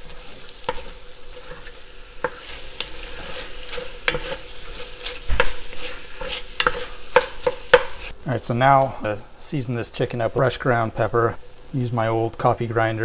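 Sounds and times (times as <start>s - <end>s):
meat sizzling in oil: 0.0s - 8.1s
wooden spoon scraping and knocking pot: 0.0s - 8.1s.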